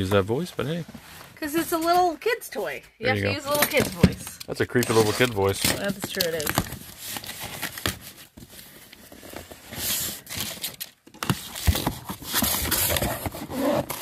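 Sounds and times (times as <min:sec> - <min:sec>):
plastic wrap crinkling: 0:04.7 - 0:14.0.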